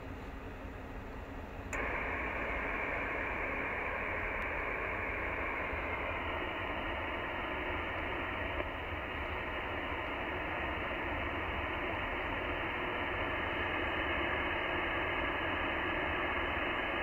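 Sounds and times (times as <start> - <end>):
radio switch click: 1.7 - 11.8
radio speaker hiss: 1.7 - 17.0.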